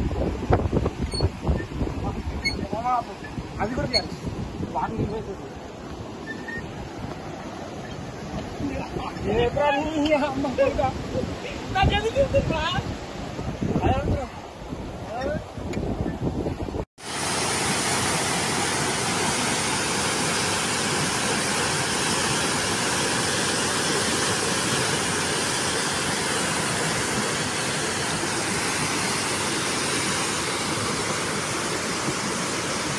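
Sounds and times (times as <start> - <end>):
water gushing down a spillway: 17.0 - 32.9.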